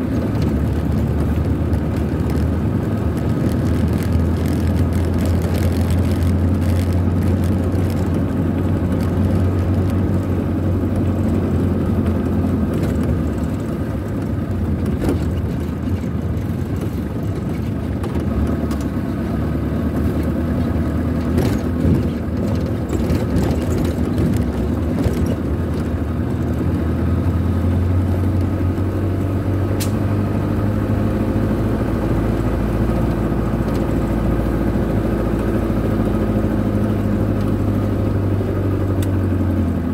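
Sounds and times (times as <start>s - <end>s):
vehicle engine running: 0.0s - 39.9s
knocks and rattles: 12.0s - 19.0s, 21.1s - 26.9s.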